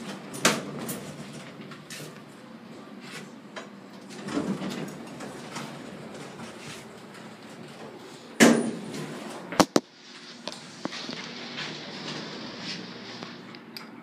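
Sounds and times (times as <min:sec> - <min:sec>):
elevator doors sliding: 0:00.0 - 0:09.7, 0:10.5 - 0:13.5.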